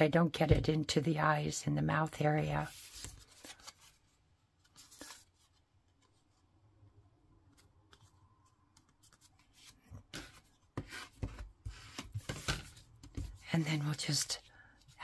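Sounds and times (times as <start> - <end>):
cardstock rustling and tapping: 8.7 - 13.9.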